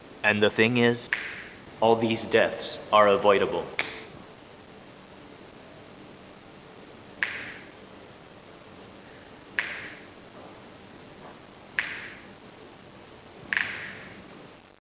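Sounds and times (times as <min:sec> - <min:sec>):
finger snaps: 0:01.1 - 0:01.6, 0:03.8 - 0:04.1, 0:07.2 - 0:07.7, 0:09.6 - 0:10.1, 0:11.8 - 0:12.2, 0:13.5 - 0:14.2.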